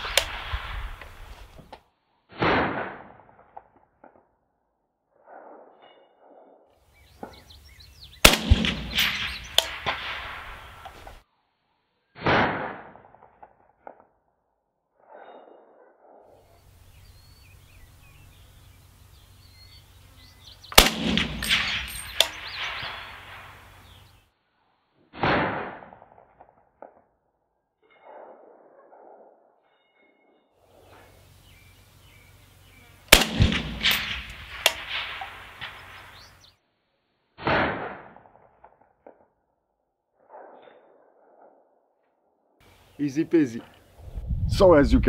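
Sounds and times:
rifle shots: 0.0 - 1.5, 2.3 - 3.3, 8.2 - 11.2, 12.2 - 13.1, 20.7 - 24.1, 25.2 - 26.0, 33.1 - 36.4, 37.4 - 38.4
rolling echo: 7.2 - 11.2, 20.4 - 24.2, 33.1 - 36.5.

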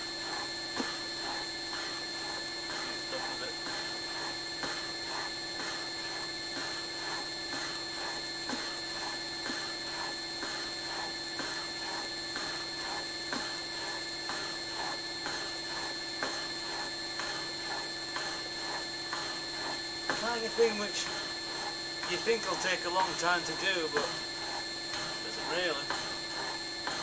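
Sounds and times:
machine motor whine: 0.0 - 27.0
cutter stroking up and down: 22.0 - 24.4.

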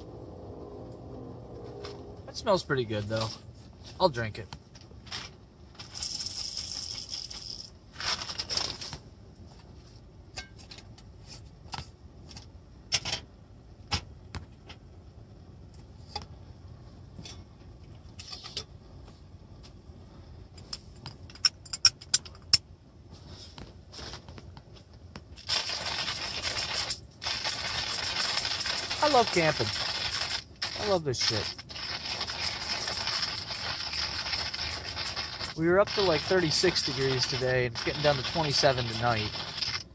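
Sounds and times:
hissing noise: 25.4 - 39.9.

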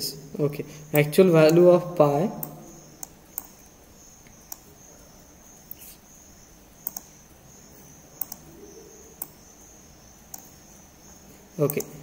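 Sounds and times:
computer mouse clicking: 2.4 - 4.7, 6.8 - 7.2, 8.2 - 8.5, 9.1 - 9.5, 10.3 - 10.6, 11.6 - 12.0.

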